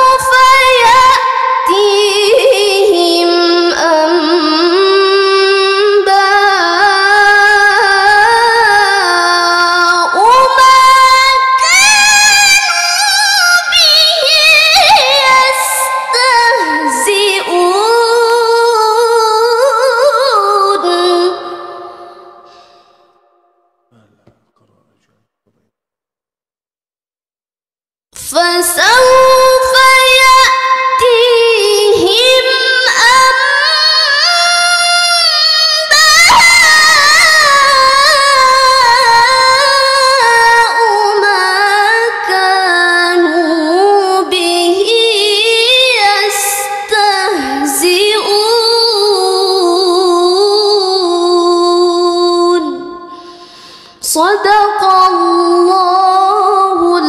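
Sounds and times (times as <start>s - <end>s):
woman reciting melodically: 0.0s - 22.7s, 28.2s - 57.0s
woman chanting recitation: 13.6s - 21.4s.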